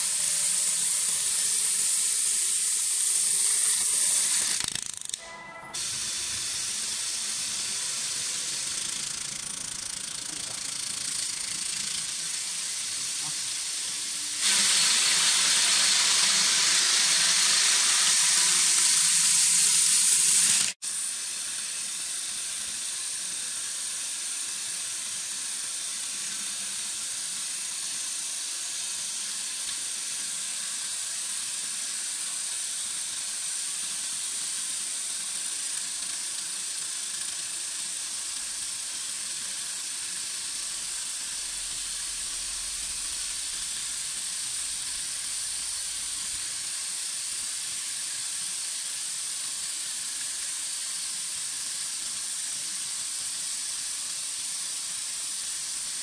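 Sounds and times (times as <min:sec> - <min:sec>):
thin high whine: 0:00.0 - 0:20.8
machine running hiss: 0:00.0 - 0:56.0.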